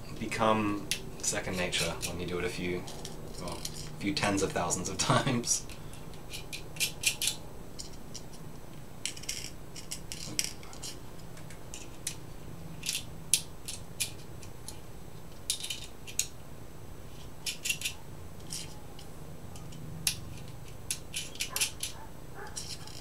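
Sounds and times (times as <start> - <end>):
metal nuts clicking: 5.7 - 8.4, 9.0 - 12.2, 12.8 - 16.3, 17.2 - 23.0.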